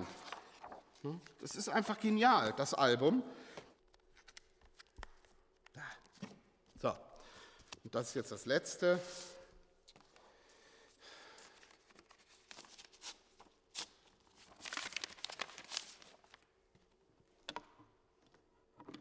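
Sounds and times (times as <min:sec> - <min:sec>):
paper and cardboard rustling: 0:00.0 - 0:02.2, 0:11.5 - 0:16.4.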